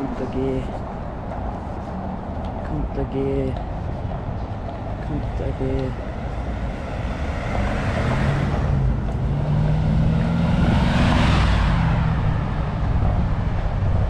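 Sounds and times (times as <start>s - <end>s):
car driving past: 5.9s - 14.0s.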